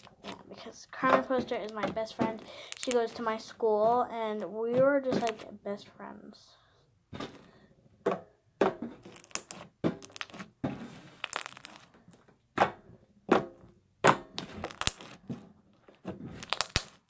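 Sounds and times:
foam slime popping and crackling: 0:00.0 - 0:00.4, 0:01.0 - 0:03.2, 0:09.0 - 0:11.9, 0:14.3 - 0:15.2, 0:16.2 - 0:17.0.

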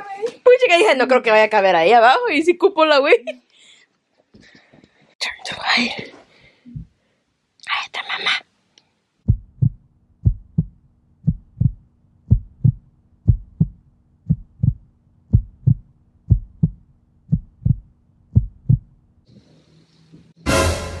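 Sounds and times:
heartbeat double thump: 0:06.7 - 0:06.9, 0:09.3 - 0:18.9.

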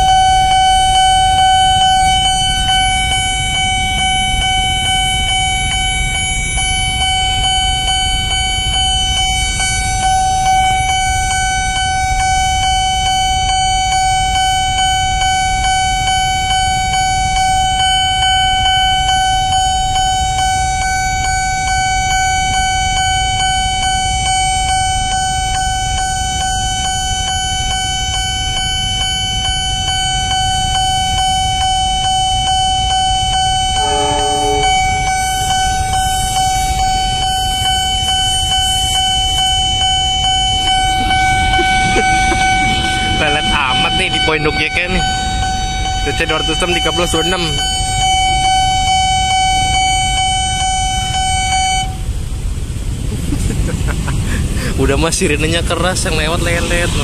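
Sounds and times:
idling motorbikes and cars: 0:00.0 - 0:20.8, 0:51.9 - 0:57.0
level crossing warning siren: 0:00.0 - 0:53.2, 0:53.8 - 0:57.0
vehicle horn honk: 0:33.7 - 0:35.5.

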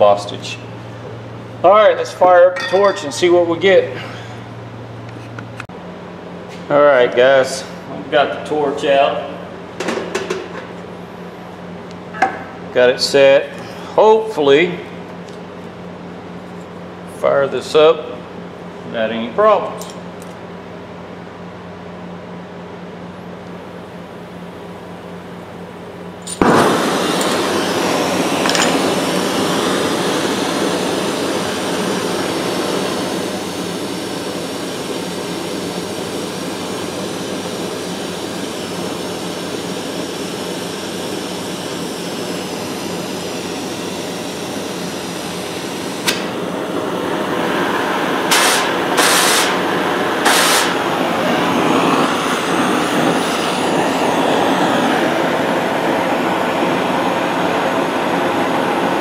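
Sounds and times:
torch click: 0:26.2 - 0:29.1, 0:45.9 - 0:46.5, 0:48.3 - 0:50.9
gas torch flame hissing: 0:26.2 - 0:59.0
short sharp bursts of hiss: 0:48.2 - 0:50.9.

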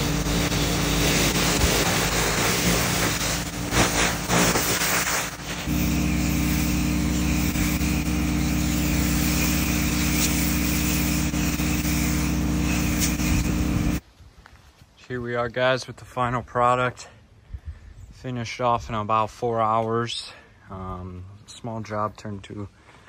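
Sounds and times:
pressure washer engine running: 0:00.0 - 0:14.0
water spray hissing on pavers: 0:00.0 - 0:14.0.

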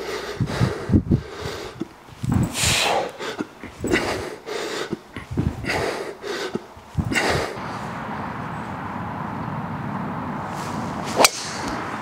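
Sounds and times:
person breathing hard: 0:00.0 - 0:08.0
steady low background noise: 0:00.0 - 0:12.0
low thuds: 0:00.4 - 0:02.8, 0:05.0 - 0:05.8, 0:06.6 - 0:08.5.

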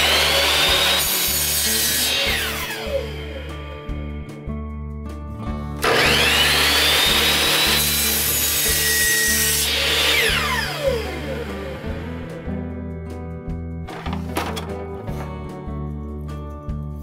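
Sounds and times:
miter saw cutting wood: 0:00.0 - 0:03.5, 0:05.8 - 0:12.5.

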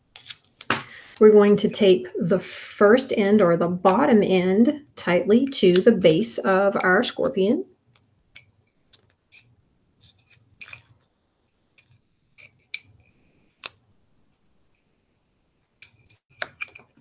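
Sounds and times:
tape crackles and clicks: 0:00.0 - 0:01.8, 0:05.5 - 0:11.2, 0:11.8 - 0:14.8, 0:15.8 - 0:17.0.

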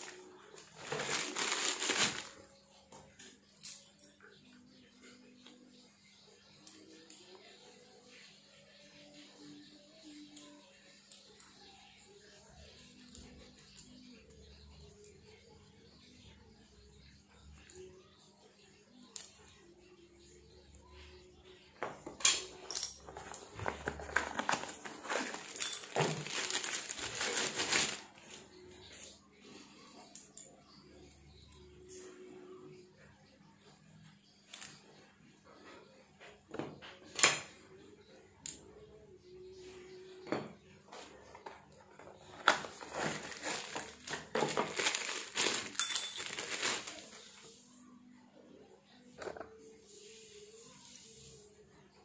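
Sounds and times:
plastic bag crinkling: 0:00.0 - 0:02.4, 0:23.2 - 0:28.4, 0:42.5 - 0:47.2
metal parts knocking and clinking: 0:22.2 - 0:26.2, 0:45.8 - 0:46.4.

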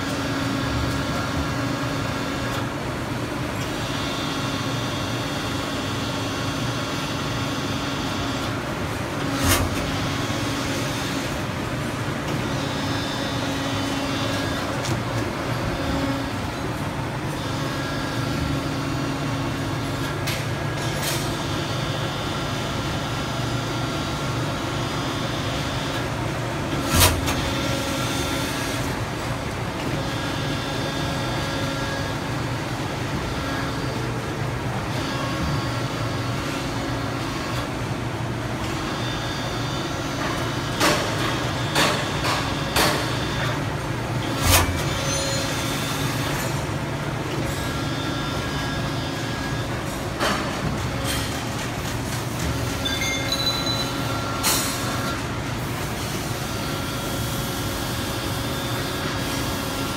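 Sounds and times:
loud machine clunk: 0:44.2 - 0:45.4.

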